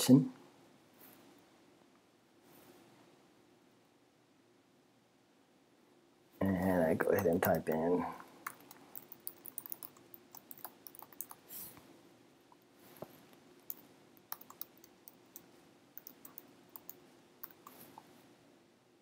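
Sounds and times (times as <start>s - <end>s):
typing on computer keyboard: 7.0s - 11.4s, 13.7s - 17.8s.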